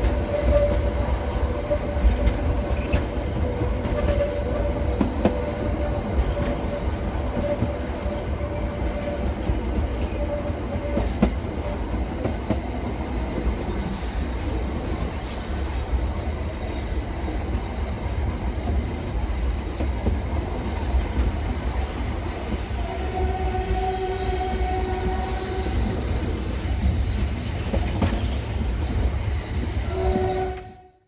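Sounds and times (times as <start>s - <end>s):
train rumbling along track: 0.0s - 31.0s
train horn: 5.7s - 11.3s, 22.7s - 26.0s, 29.8s - 31.0s.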